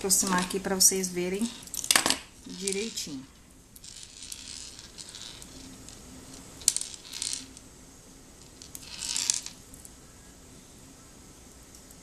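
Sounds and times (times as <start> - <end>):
beads clicking and rattling on table: 1.4 - 7.6, 8.4 - 9.9.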